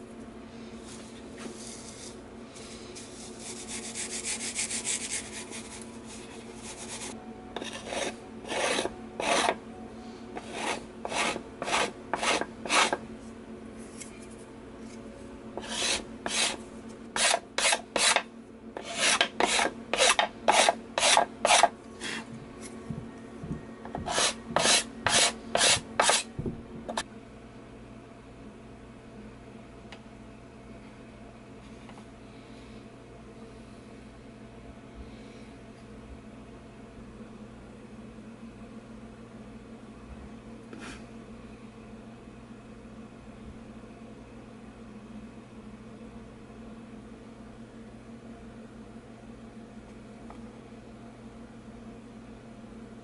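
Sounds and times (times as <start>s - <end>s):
abrasive tool scraping wood: 6.6s - 9.6s, 10.4s - 13.0s, 15.6s - 16.6s, 17.2s - 22.3s, 23.9s - 26.3s.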